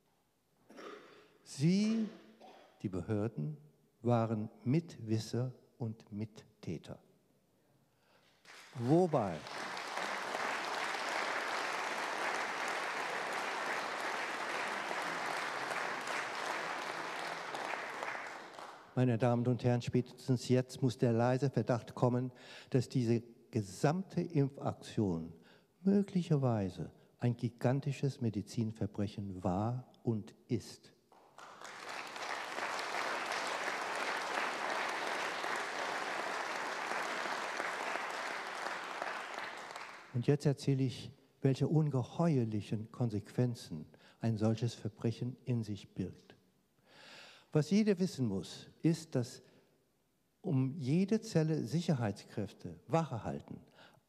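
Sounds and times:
audience applauding: 0:08.4 - 0:18.9, 0:31.2 - 0:40.1.

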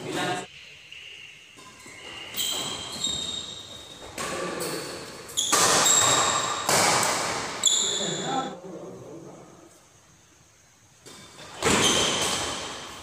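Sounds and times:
rackets striking shuttlecock: 0:01.6 - 0:08.0.

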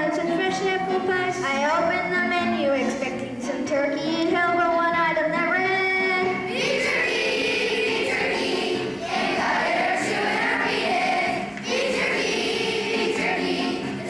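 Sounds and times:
children's choir singing: 0:06.0 - 0:14.0.

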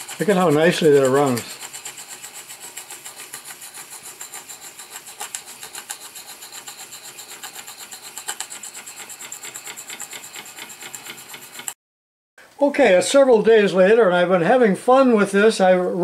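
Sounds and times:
model steam engine running: 0:00.0 - 0:11.8.

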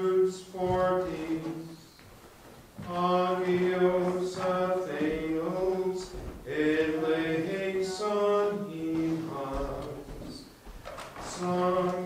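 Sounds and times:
man chanting plainchant: 0:00.0 - 0:01.9, 0:02.8 - 0:10.5, 0:11.2 - 0:12.0.

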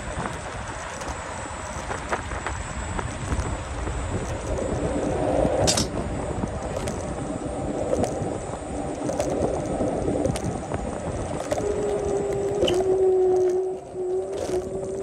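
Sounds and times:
electric motor whine: 0:00.0 - 0:15.0
scooter rolling rumble: 0:00.0 - 0:15.0.

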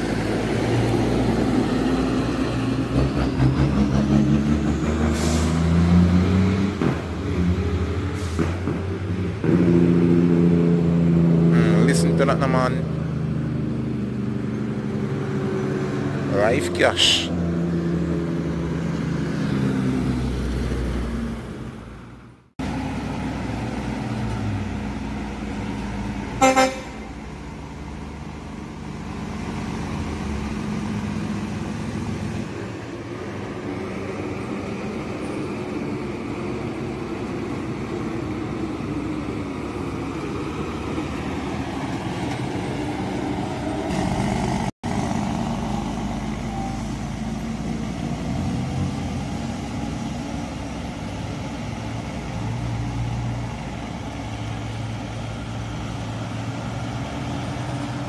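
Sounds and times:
truck diesel engines engine-braking: 0:00.0 - 0:58.0
short vehicle horn toot: 0:26.4 - 0:27.1.

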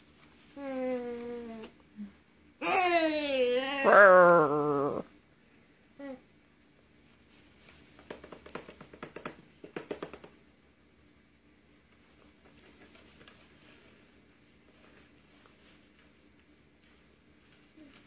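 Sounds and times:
taps on plastic tray: 0:08.0 - 0:10.4.

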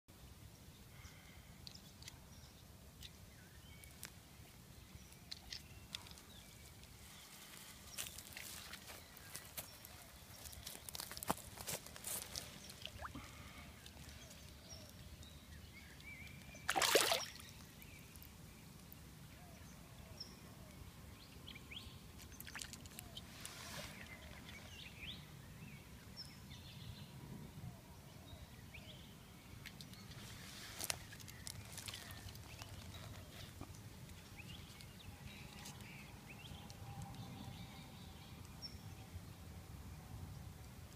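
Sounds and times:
pond water splashing and sloshing: 0:05.2 - 0:15.2, 0:15.9 - 0:19.0, 0:22.1 - 0:24.6, 0:29.6 - 0:34.1.

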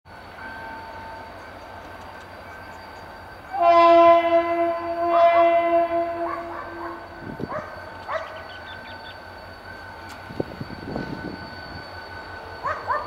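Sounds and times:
diesel locomotive horn blast: 0:03.4 - 0:08.9.

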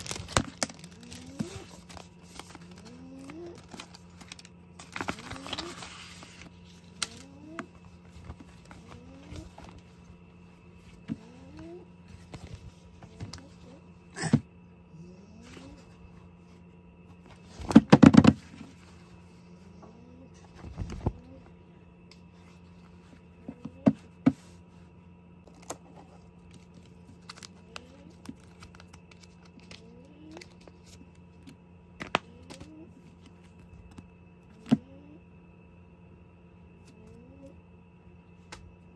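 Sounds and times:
rapid crinkling: 0:00.0 - 0:13.7, 0:25.5 - 0:31.2
low steady hum: 0:00.0 - 0:38.9.

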